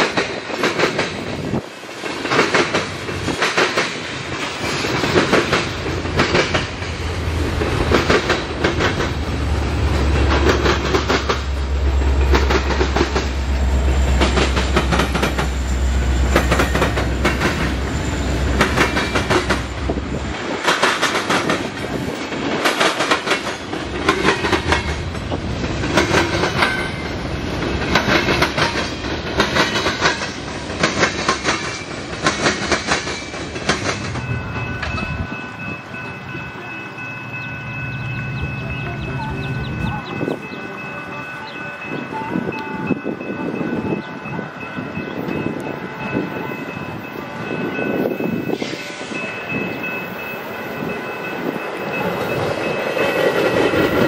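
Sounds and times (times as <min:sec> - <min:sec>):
train wheels clicking over rail joints: 0:00.0 - 0:35.6, 0:50.9 - 0:54.0
diesel locomotive engine rumble: 0:00.0 - 0:54.0.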